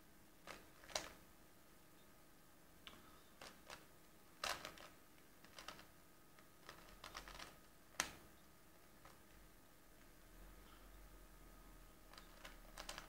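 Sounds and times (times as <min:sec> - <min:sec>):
plastic puzzle cube clicking: 0:12.1 - 0:13.0.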